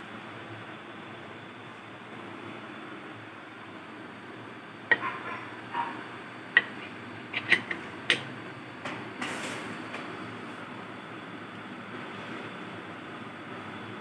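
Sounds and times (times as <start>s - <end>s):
metal lid clicks and clinks: 6.6s - 8.3s.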